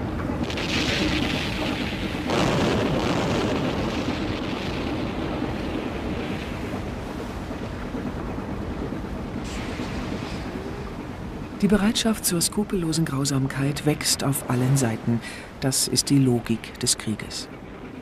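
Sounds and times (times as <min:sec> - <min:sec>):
explosions roaring: 0:00.0 - 0:11.4.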